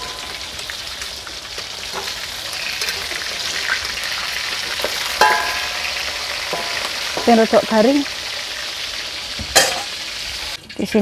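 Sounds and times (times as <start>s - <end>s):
food sizzling in a wok: 0.0s - 11.0s
metal spatula scraping a pan: 1.5s - 7.8s.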